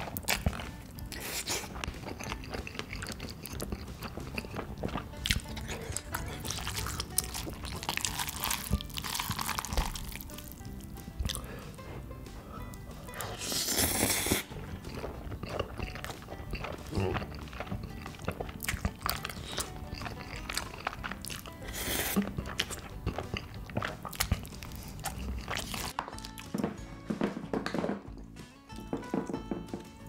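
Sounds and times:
noodles being slurped: 0.0s - 26.4s
wet chewing: 0.0s - 26.6s
background music: 0.0s - 30.0s.

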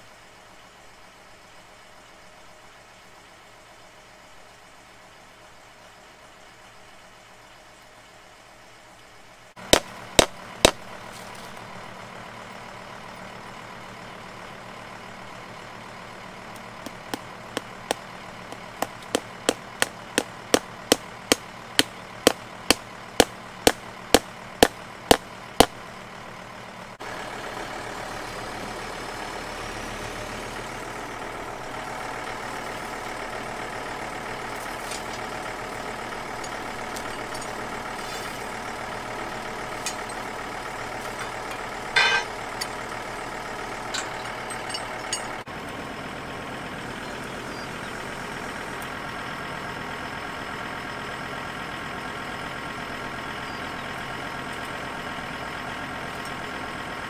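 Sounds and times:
tractor engine idling: 0.2s - 57.0s
hammer striking fence post: 9.7s - 10.8s, 16.8s - 25.8s, 42.0s - 42.4s.

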